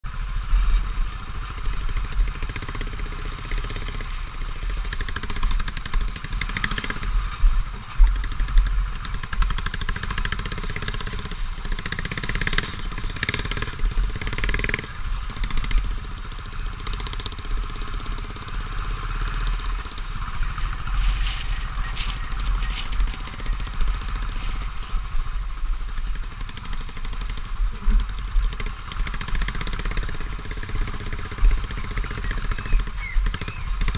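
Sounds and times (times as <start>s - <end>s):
motorcycle engine running: 0.0s - 33.9s.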